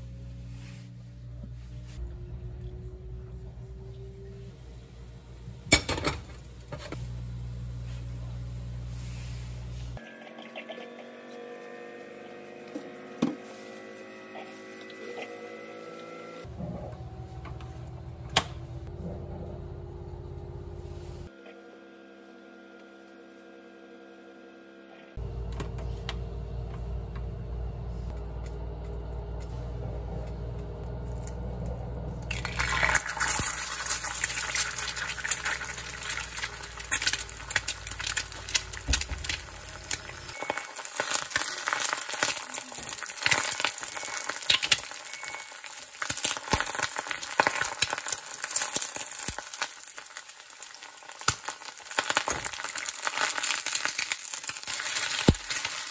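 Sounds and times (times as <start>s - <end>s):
low steady rumble: 0.0s - 10.0s, 16.5s - 21.3s, 25.2s - 40.4s
egg sizzling in a pan: 32.3s - 55.9s.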